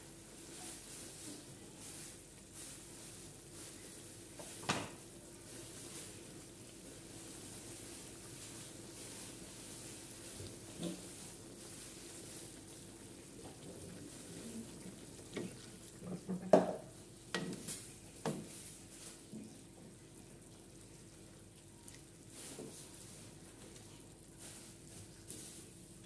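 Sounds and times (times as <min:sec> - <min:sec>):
wooden spatula stirring: 0:07.2 - 0:20.0.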